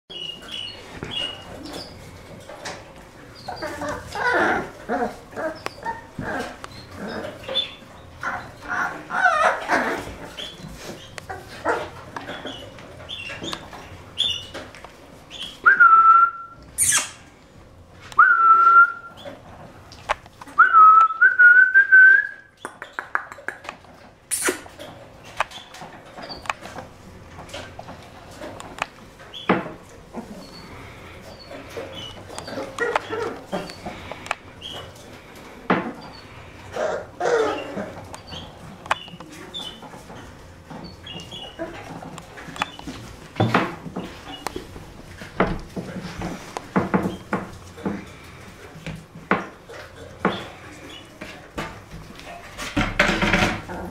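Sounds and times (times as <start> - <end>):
puppies moving about: 0.1 - 15.7, 22.5 - 53.9
person whistling: 18.2 - 19.1, 20.6 - 22.4.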